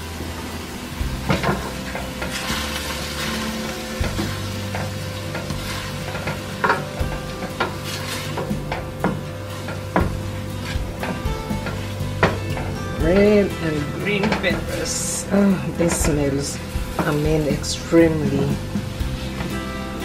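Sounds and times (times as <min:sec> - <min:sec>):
vegetables sizzling in oil: 0:00.0 - 0:20.0
wooden spoon knocking and scraping pan: 0:01.1 - 0:13.1, 0:13.8 - 0:14.8.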